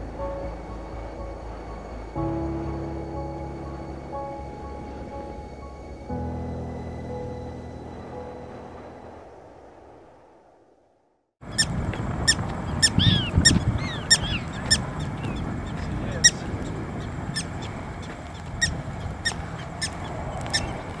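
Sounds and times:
closing music: 0:00.0 - 0:09.4
prairie dog barking: 0:11.5 - 0:21.0.

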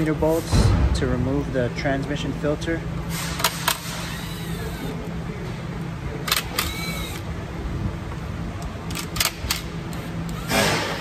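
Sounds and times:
steady low hum: 0:00.0 - 0:11.0
cordless ratchet bursts: 0:03.4 - 0:05.0, 0:06.2 - 0:07.3.

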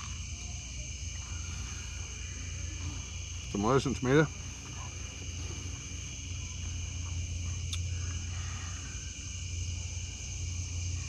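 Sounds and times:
crickets trilling: 0:00.0 - 0:11.0
steady low hum: 0:00.0 - 0:11.0.

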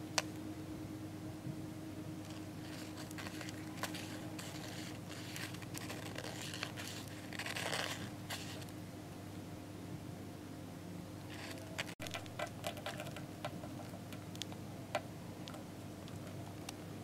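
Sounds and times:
steady low hum: 0:00.0 - 0:17.0
beetles scratching on paper: 0:02.2 - 0:08.7, 0:11.3 - 0:14.0.

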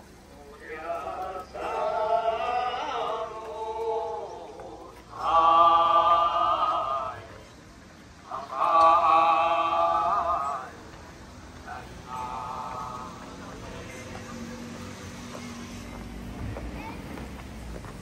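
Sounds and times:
chant-like held tones: 0:00.4 - 0:11.0, 0:11.6 - 0:14.2.

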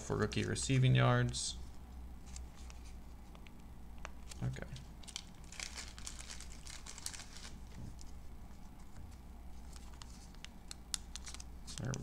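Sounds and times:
plastic sleeve crinkling: 0:04.2 - 0:08.2, 0:09.6 - 0:12.0.

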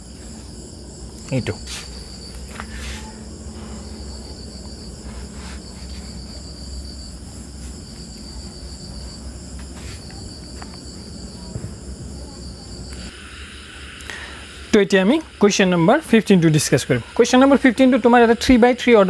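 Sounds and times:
low hum: 0:00.0 - 0:18.2
insects chirring: 0:00.0 - 0:19.0
cloth wiping a whiteboard: 0:01.6 - 0:12.5.

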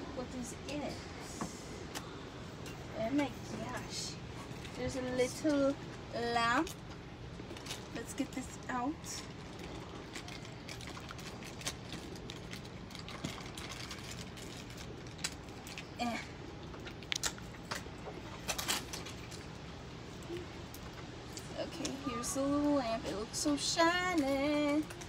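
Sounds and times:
low steady hum: 0:00.0 - 0:25.0
plastic bag crinkling: 0:07.4 - 0:19.6.

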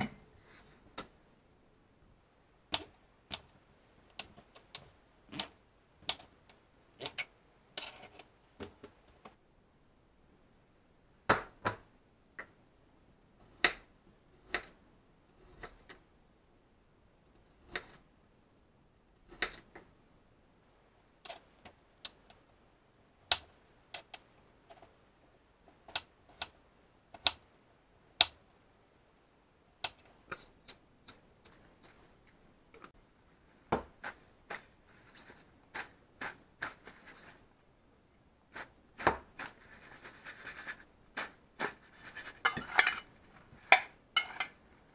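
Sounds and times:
mushrooms clattering into metal bowl: 0:41.2 - 0:44.7.

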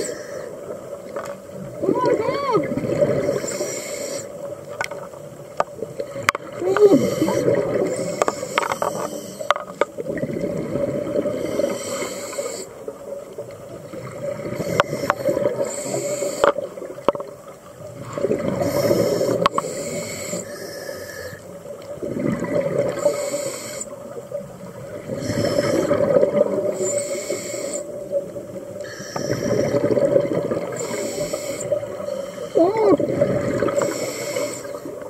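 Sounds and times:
regulator inhale hiss: 0:00.0 - 0:00.6, 0:03.2 - 0:04.5, 0:06.8 - 0:09.5, 0:11.3 - 0:12.8, 0:14.5 - 0:16.7, 0:18.6 - 0:21.6, 0:23.0 - 0:24.1, 0:25.1 - 0:26.1, 0:26.7 - 0:28.1, 0:28.8 - 0:29.9, 0:30.7 - 0:32.6, 0:33.6 - 0:35.0
exhaled bubbles rushing: 0:01.6 - 0:03.5, 0:06.1 - 0:08.1, 0:10.0 - 0:11.4, 0:17.8 - 0:19.5, 0:21.9 - 0:23.1, 0:24.6 - 0:26.9, 0:29.3 - 0:30.9, 0:32.6 - 0:33.9.

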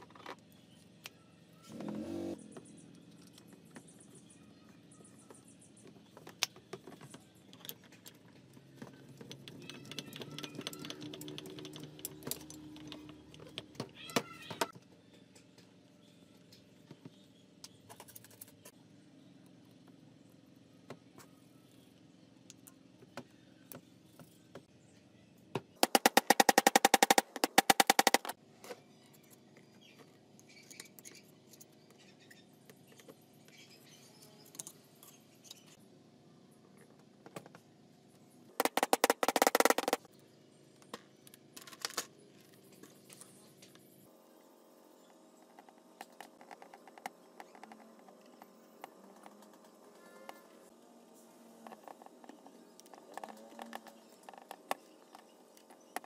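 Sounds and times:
fast run of clicks: 0:25.8 - 0:28.4, 0:38.6 - 0:40.1.

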